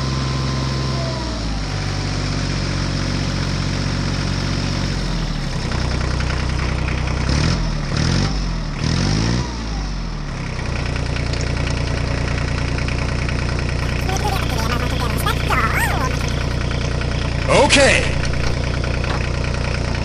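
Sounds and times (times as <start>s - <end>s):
small tractor motor running: 10.9s - 20.0s.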